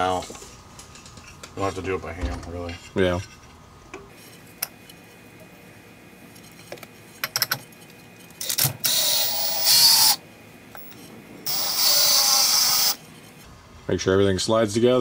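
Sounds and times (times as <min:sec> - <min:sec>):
cordless drill spinning: 0:08.4 - 0:10.2, 0:11.5 - 0:13.0.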